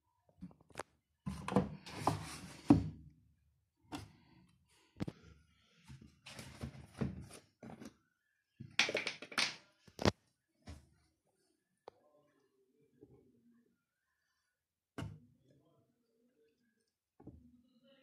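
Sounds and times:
plastic bottle clunks and rustles: 0:05.9 - 0:08.0.

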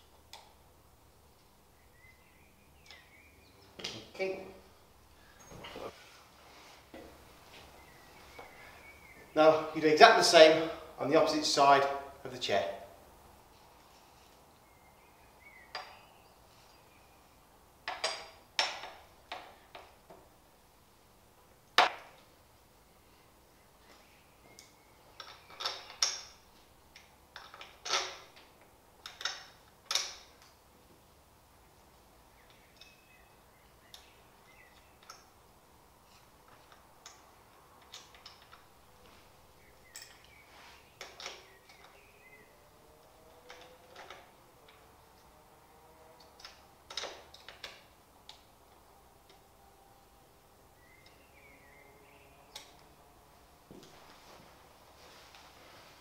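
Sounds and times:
metal bracket clinks and knocks: 0:17.9 - 0:19.9, 0:25.2 - 0:26.4, 0:27.4 - 0:30.4, 0:39.9 - 0:40.4
small metal parts clicking: 0:25.2 - 0:30.5, 0:39.9 - 0:40.4.

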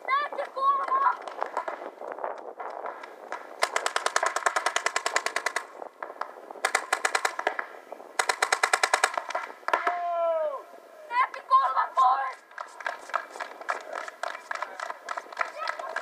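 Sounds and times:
paintball markers firing: 0:00.8 - 0:10.0, 0:12.3 - 0:16.0.

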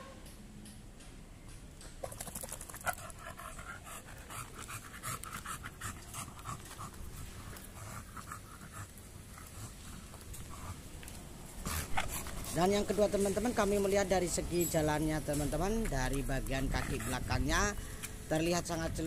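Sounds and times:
dog panting: 0:02.6 - 0:10.9, 0:11.6 - 0:13.0, 0:16.1 - 0:18.0.

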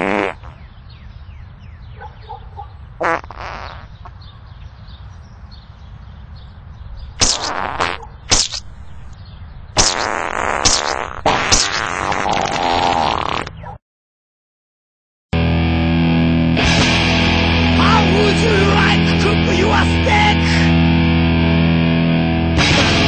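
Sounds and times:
farts: 0:00.0 - 0:00.6, 0:03.0 - 0:04.0, 0:07.2 - 0:08.6, 0:09.8 - 0:13.6.

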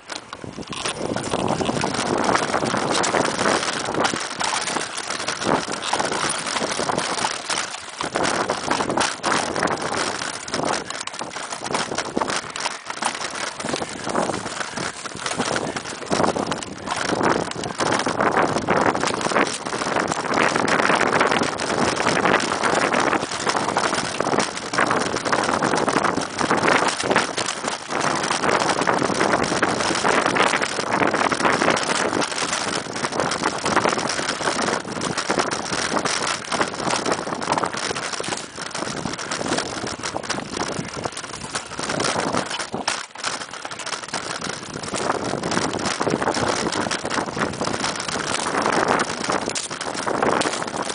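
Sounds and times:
bike rattling over rough trail: 0:00.0 - 0:50.9
wind on microphone: 0:00.0 - 0:50.9.

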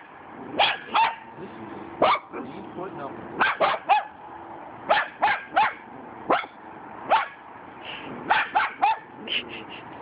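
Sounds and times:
small dog barking: 0:00.0 - 0:01.3, 0:02.0 - 0:02.5, 0:03.4 - 0:04.2, 0:04.9 - 0:07.4, 0:08.2 - 0:09.2.

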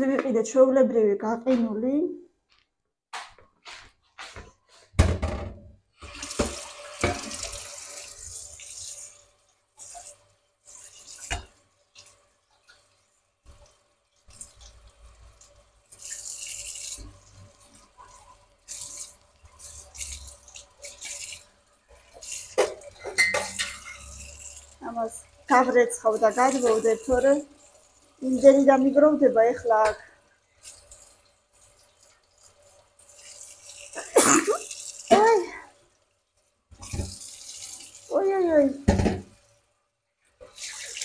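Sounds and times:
tap running into sink: 0:03.6 - 0:07.7, 0:36.8 - 0:37.4, 0:38.8 - 0:39.4
metal pots knocking against sink: 0:05.0 - 0:05.7, 0:22.5 - 0:24.1, 0:38.8 - 0:39.4.

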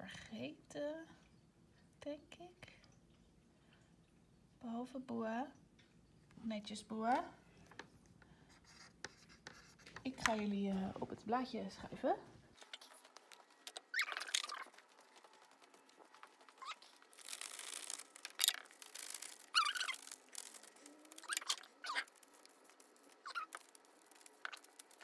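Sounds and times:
marker scratching on glossy surface: 0:08.5 - 0:10.4
cloth rubbing on plastic: 0:12.6 - 0:25.0.

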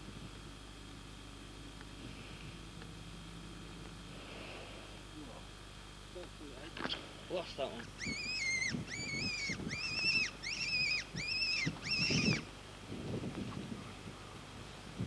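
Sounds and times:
high squealing calls: 0:07.6 - 0:12.5.

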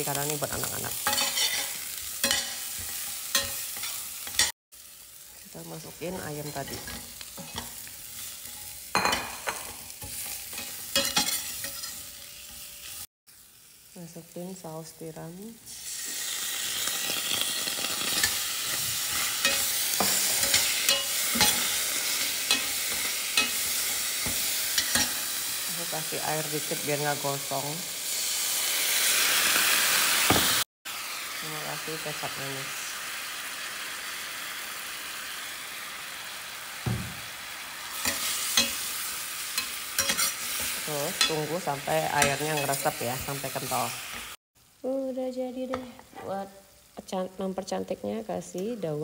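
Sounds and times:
sauce sizzling in a hot pan: 0:00.0 - 0:45.8, 0:46.4 - 0:48.6
metal spatula scraping a pan: 0:00.6 - 0:04.5, 0:06.4 - 0:13.0, 0:17.0 - 0:25.5, 0:38.0 - 0:43.9.

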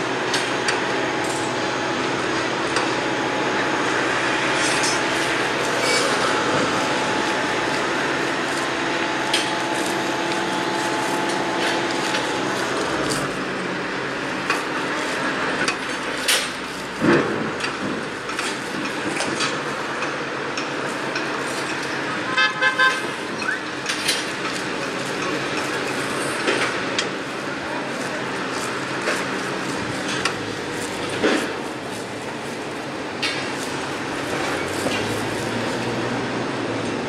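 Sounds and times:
machinery noise: 0:00.0 - 0:37.0
traffic: 0:00.0 - 0:37.0
knocks and clanks: 0:15.6 - 0:19.6
pulsing horn toot: 0:22.2 - 0:23.1.

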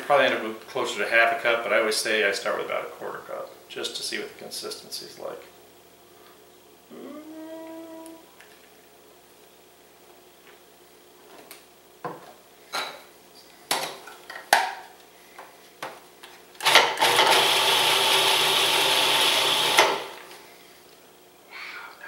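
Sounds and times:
food processor motor running: 0:16.6 - 0:20.3.

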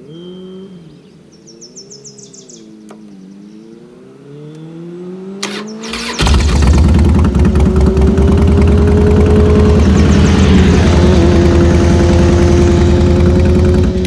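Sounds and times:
birds chirping: 0:00.0 - 0:06.3, 0:08.9 - 0:13.8
motorcycle engine revving: 0:01.8 - 0:14.0.

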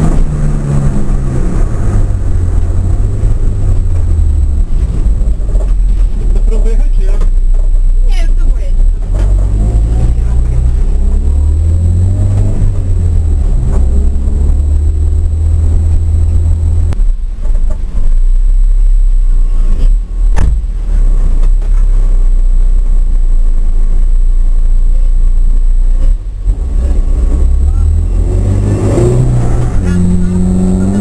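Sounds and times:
car engine revving: 0:00.0 - 0:31.0
steady low rumble: 0:00.0 - 0:31.0.

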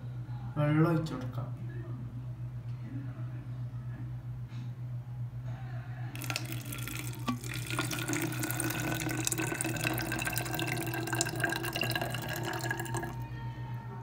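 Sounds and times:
water pouring into plastic bottle: 0:06.2 - 0:13.2.

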